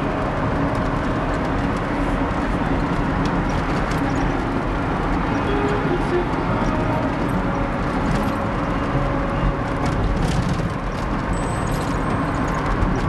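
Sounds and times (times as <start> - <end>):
car engine and tyre noise: 0.0 - 13.0.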